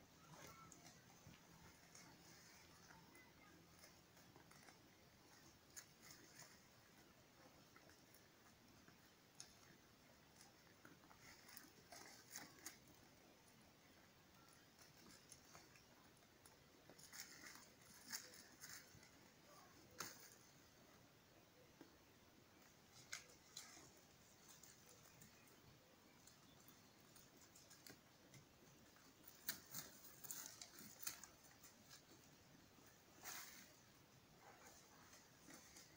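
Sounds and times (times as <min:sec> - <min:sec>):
sheep tearing and chewing leaves: 0:00.2 - 0:21.0, 0:21.6 - 0:35.9
twigs and dry leaves snapping: 0:26.4 - 0:32.1.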